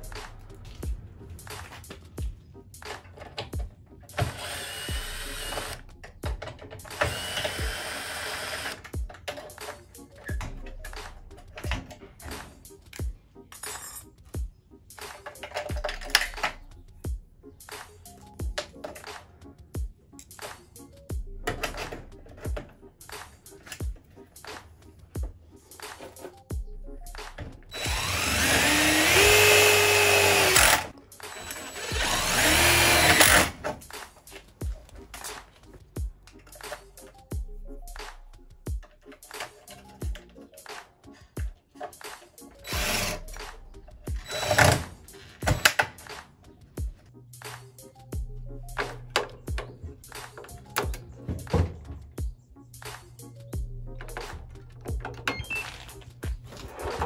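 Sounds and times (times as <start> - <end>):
cordless drill whining: 4.2 - 5.8, 7.0 - 8.9, 27.7 - 33.6, 42.6 - 43.4, 44.2 - 45.8.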